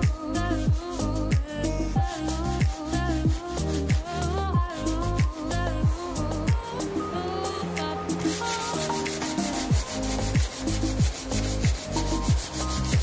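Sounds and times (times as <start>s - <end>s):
hand sanding rasping rub: 0.0s - 13.0s
music with deep beat: 0.0s - 13.0s.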